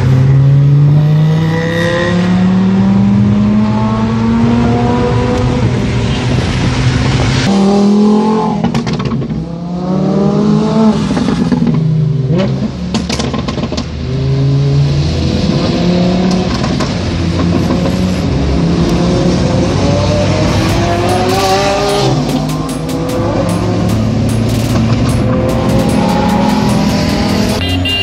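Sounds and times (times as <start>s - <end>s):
car engine accelerating through gears: 13.6s - 27.6s
sharp exhaust cracks: 20.4s - 28.0s.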